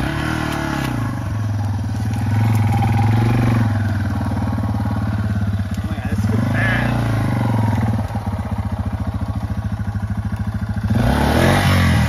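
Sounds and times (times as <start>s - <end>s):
motorcycle engine chugging and revving: 0.0s - 12.0s.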